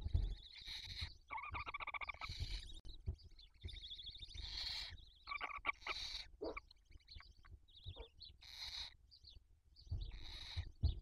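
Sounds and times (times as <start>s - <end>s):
owl chicks rasping screeches: 0.5s - 2.8s, 4.4s - 6.8s, 7.9s - 9.0s, 10.0s - 10.9s.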